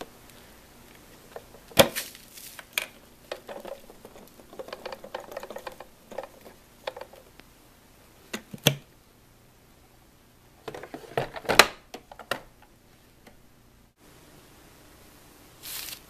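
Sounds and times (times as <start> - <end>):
dust rattling and rustling: 0.9 - 7.3, 15.6 - 16.0.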